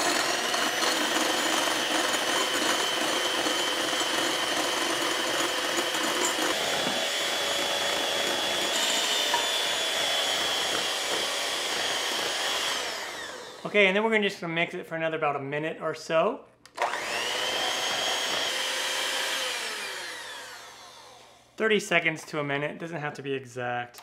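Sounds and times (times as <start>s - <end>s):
electric hand mixer whining: 0.0s - 13.7s, 16.8s - 21.5s.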